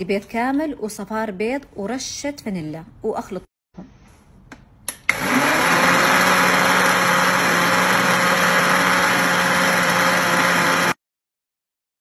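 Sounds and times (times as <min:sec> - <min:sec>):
blender motor running: 0:05.1 - 0:11.0.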